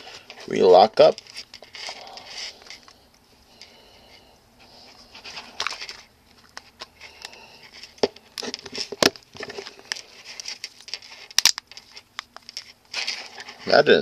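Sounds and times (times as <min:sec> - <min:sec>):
fingers rustling on device: 0:04.6 - 0:13.8.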